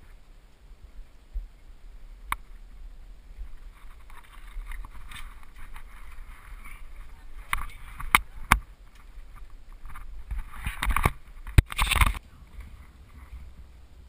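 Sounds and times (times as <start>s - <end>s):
camera handling rumble: 3.7s - 12.8s.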